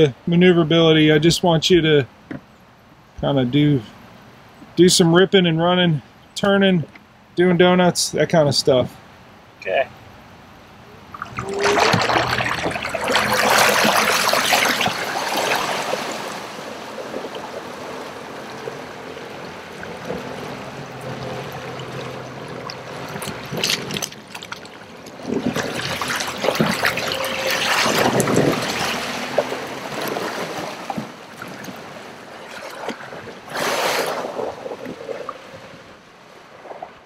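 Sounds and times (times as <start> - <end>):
water splashing along boat hull: 11.0 - 37.0.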